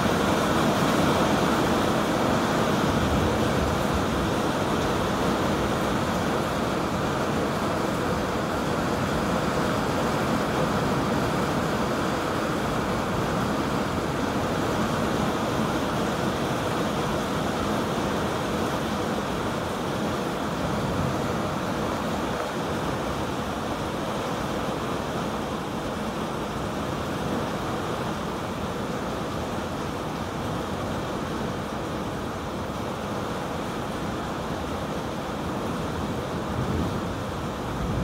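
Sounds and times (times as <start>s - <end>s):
thunderstorm rushing noise: 2.8s - 4.6s, 36.5s - 38.0s.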